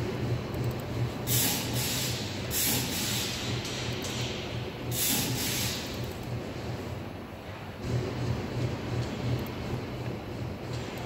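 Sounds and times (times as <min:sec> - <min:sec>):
low machine hum: 0:00.0 - 0:11.0
hissing bursts: 0:01.3 - 0:03.4, 0:04.9 - 0:06.0.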